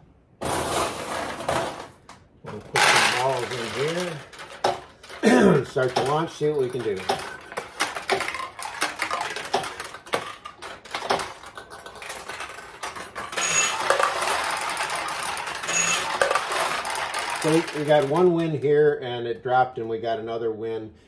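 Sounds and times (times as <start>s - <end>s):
payout balls clattering into tray: 0.3s - 18.9s
steel balls clicking off pins: 2.5s - 18.8s.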